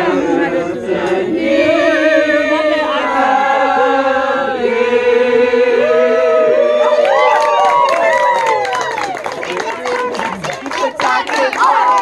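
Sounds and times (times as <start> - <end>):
group singing with vibrato: 0.0 - 6.8, 10.7 - 12.0.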